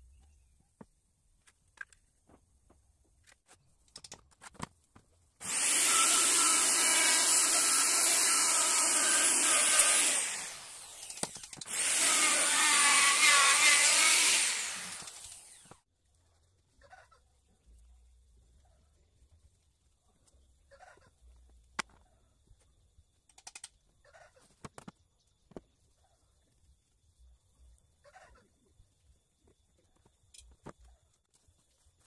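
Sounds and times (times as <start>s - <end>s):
electric router whining: 5.4s - 15.8s.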